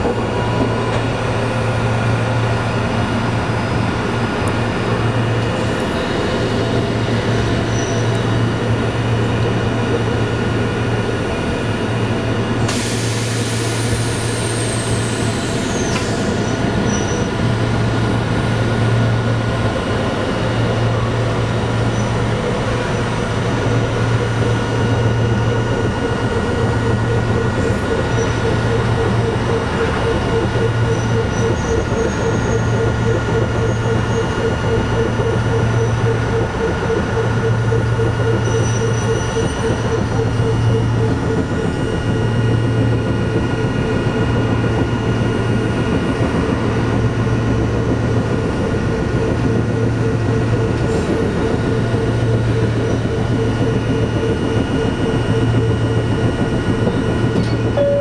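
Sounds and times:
tram running gear rumble: 0:00.0 - 0:58.0
high-pitched wheel squeal: 0:30.8 - 0:32.8.

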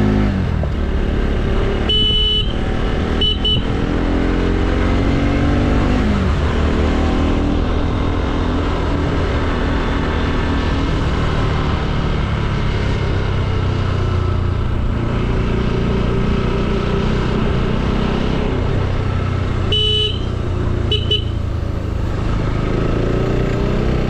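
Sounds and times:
motorcycle engine rumbling: 0:00.0 - 0:24.0
short horn beep: 0:01.8 - 0:02.6, 0:03.2 - 0:03.7, 0:19.7 - 0:21.4.

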